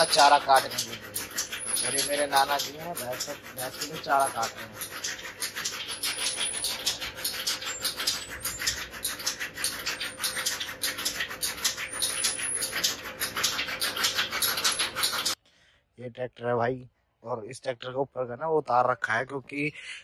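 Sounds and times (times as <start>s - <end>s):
chaff cutter chopping: 0.0s - 15.4s.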